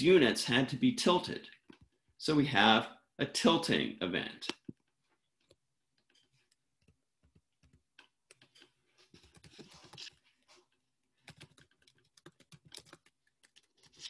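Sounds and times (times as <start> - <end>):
faint keyboard typing: 4.5 - 14.0.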